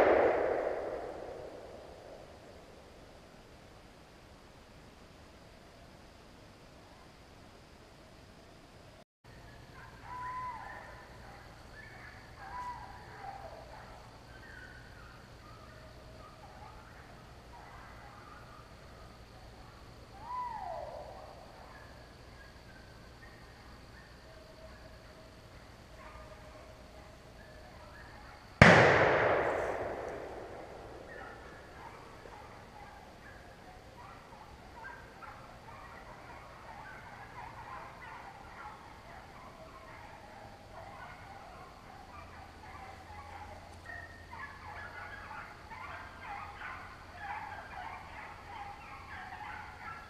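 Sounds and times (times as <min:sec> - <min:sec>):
gunshot echoing: 0:00.0 - 0:02.6, 0:28.6 - 0:32.1
distant hounds baying: 0:00.0 - 0:02.8, 0:09.3 - 0:50.0.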